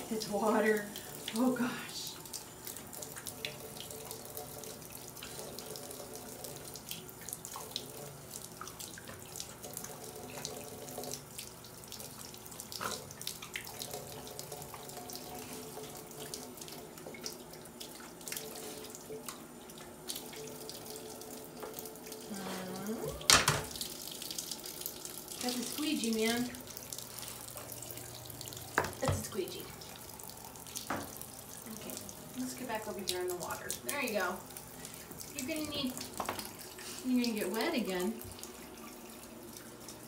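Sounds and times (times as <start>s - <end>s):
water stream into bathtub: 0.0s - 40.0s
puppy lapping water: 0.2s - 23.3s.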